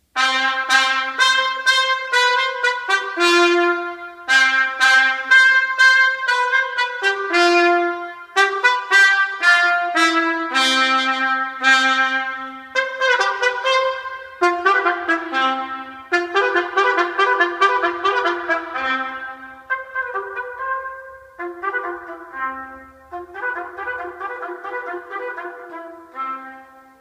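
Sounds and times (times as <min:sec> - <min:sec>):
trumpet fanfare over loudspeakers: 0:00.2 - 0:27.0.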